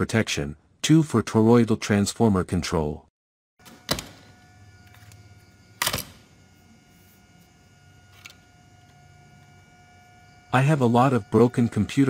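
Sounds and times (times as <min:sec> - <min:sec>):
electrical hum with whine: 0:03.6 - 0:12.0.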